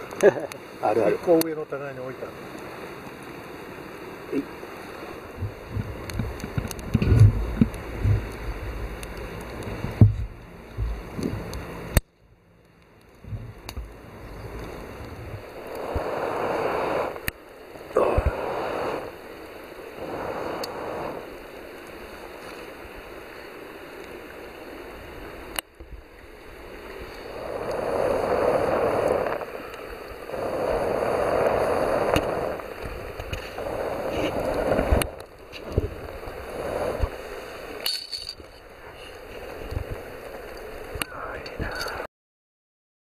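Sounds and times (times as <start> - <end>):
campfire burning: 0.0 - 42.1
fire popping: 0.0 - 42.1
rushing noise: 14.0 - 21.5, 26.6 - 37.8.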